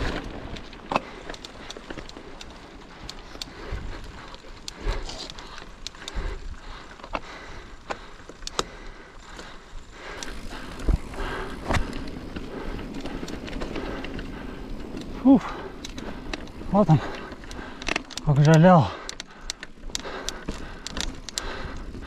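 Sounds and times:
steady rushing noise: 8.7s - 21.8s.

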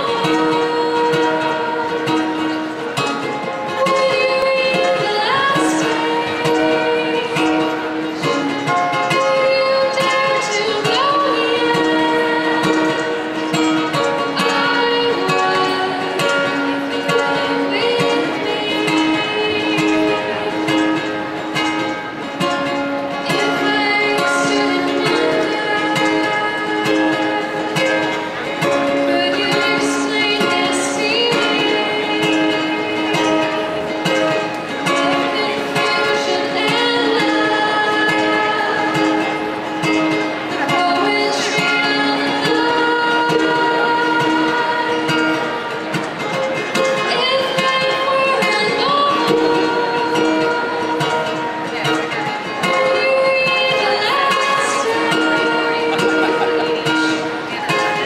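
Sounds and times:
acoustic guitar: 0.0s - 58.0s
woman singing: 0.0s - 58.0s.

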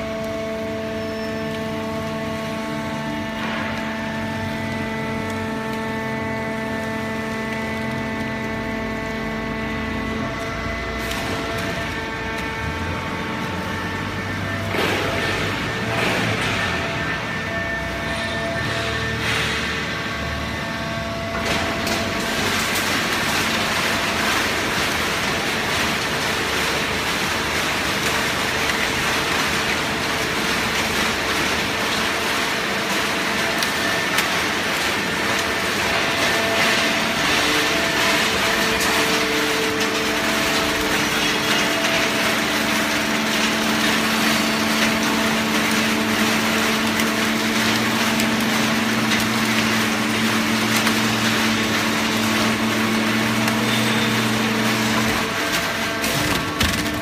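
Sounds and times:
hydraulic baler running: 0.0s - 57.0s.

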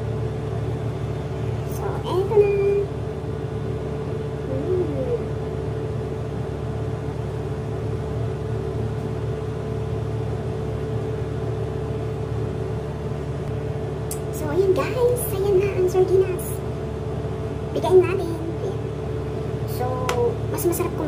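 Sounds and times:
low mechanical hum: 0.0s - 21.0s.

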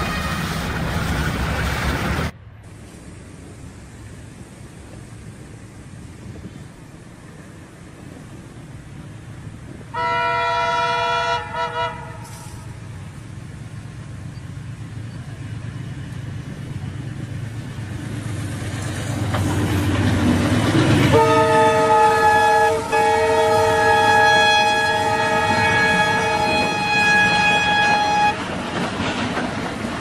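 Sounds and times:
train passing: 0.0s - 30.0s
locomotive horn: 9.9s - 12.9s, 21.0s - 28.6s.

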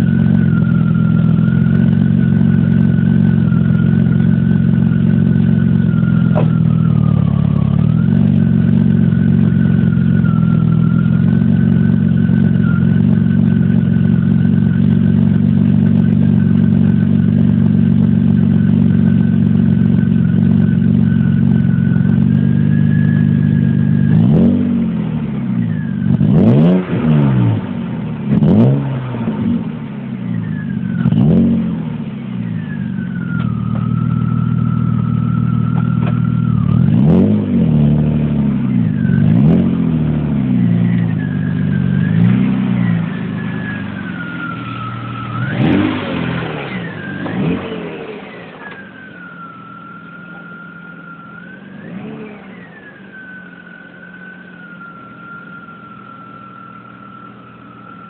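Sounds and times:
car engine idling and revving: 0.0s - 58.0s
high-pitched whistle: 4.8s - 13.8s, 19.1s - 24.6s, 30.2s - 31.6s, 32.4s - 37.4s, 38.7s - 58.0s.

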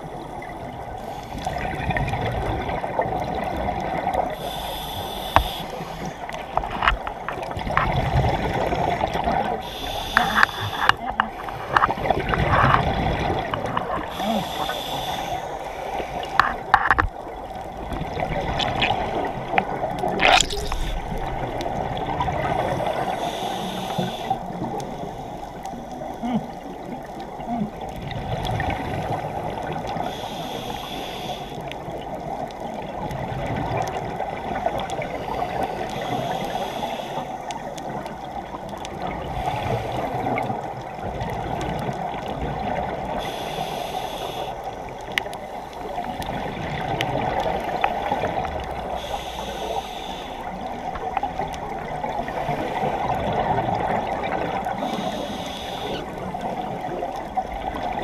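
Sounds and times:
rushing water: 0.0s - 58.0s
regulator breathing hiss: 4.4s - 6.2s, 9.6s - 11.0s, 14.1s - 16.4s, 22.6s - 25.6s, 30.0s - 31.7s, 35.2s - 37.5s, 43.1s - 44.8s, 48.9s - 50.5s, 54.8s - 56.1s
exhaled bubbles: 17.6s - 23.5s, 44.9s - 49.1s.

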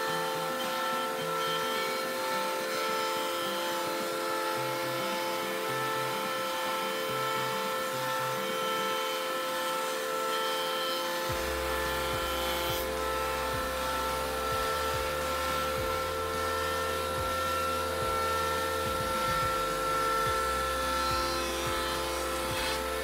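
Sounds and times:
jointer motor whine: 0.0s - 23.0s
deep rumble: 11.3s - 23.0s.

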